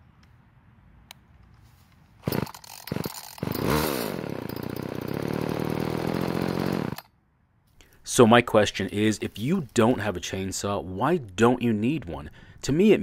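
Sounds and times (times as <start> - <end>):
chainsaw engine starting and running: 2.2 - 7.1.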